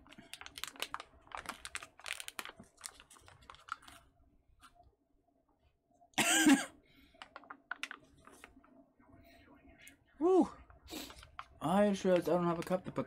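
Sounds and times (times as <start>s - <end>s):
plastic pouch crinkling: 0.0s - 4.1s, 7.2s - 8.7s, 11.0s - 12.8s
person coughing: 6.2s - 6.8s.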